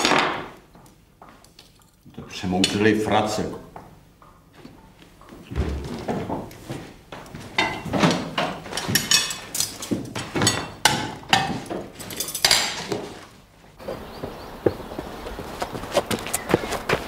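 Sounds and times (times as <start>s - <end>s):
cutlery clinking on plates: 7.6s - 13.0s.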